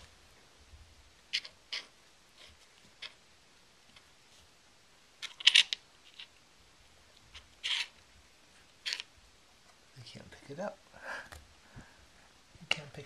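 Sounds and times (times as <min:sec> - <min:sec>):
coin and paw scraping on wood: 0:01.3 - 0:03.2, 0:05.2 - 0:06.3, 0:07.3 - 0:08.0, 0:08.8 - 0:09.1.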